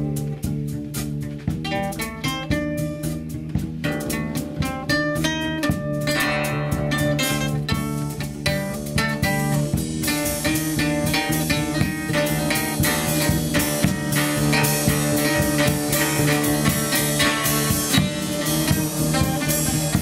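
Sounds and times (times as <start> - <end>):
guitarron: 0.0 - 20.0
snare and cymbal strokes: 0.0 - 20.0
plucked mandocello: 3.5 - 9.5.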